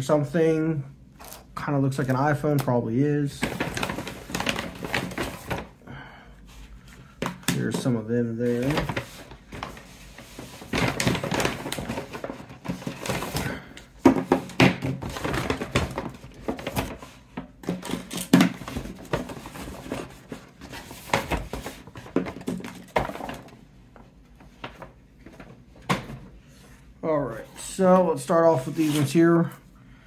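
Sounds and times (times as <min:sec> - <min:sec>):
packaging rustling: 0:03.4 - 0:05.8, 0:06.7 - 0:23.6
plastic phones clacking and knocking: 0:14.0 - 0:20.0, 0:21.0 - 0:23.6.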